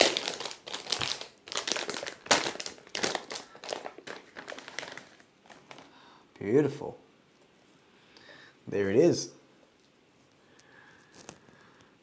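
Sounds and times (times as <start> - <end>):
plastic bag crinkling: 0.0 - 6.0, 10.8 - 11.8.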